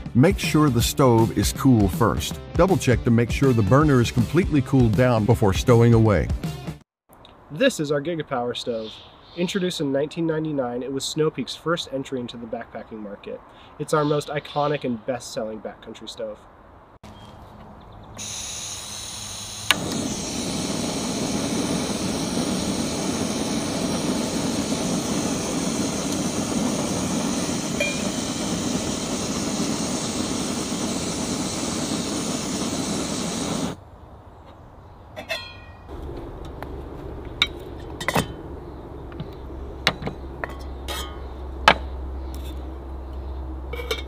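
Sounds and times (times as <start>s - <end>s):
gas burner rushing: 18.2s - 33.8s
gas hissing: 18.2s - 33.8s.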